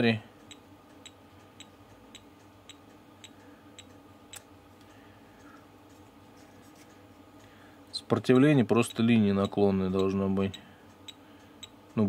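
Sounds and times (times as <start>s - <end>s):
faint steady hum: 0.0s - 12.0s
tweezers beeper ticking: 8.3s - 11.8s.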